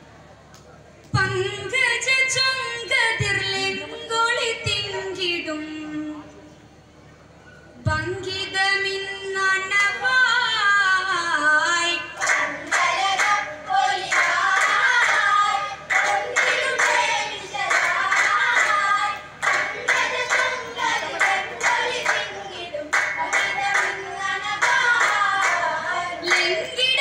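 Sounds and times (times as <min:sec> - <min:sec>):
boys singing unaccompanied: 0:09.3 - 0:27.0
rhythmic hand claps: 0:12.2 - 0:27.0.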